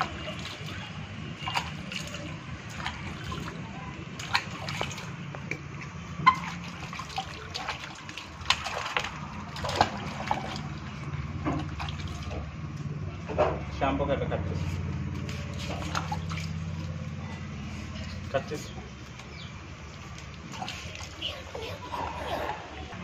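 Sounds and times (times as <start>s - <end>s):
water splashing in plastic bucket: 0.0s - 12.8s, 15.2s - 17.1s, 19.0s - 22.0s.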